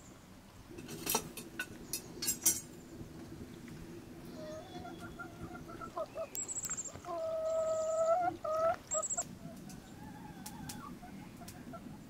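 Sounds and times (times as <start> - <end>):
chicken calling: 3.6 - 12.0.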